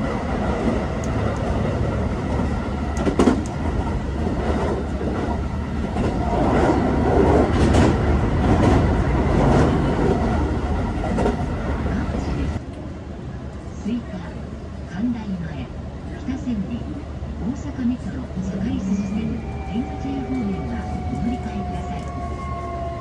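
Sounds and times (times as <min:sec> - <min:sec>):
train wheels rumbling on rail: 0:00.0 - 0:13.7, 0:15.8 - 0:23.0
rail-joint clicks: 0:03.0 - 0:03.7.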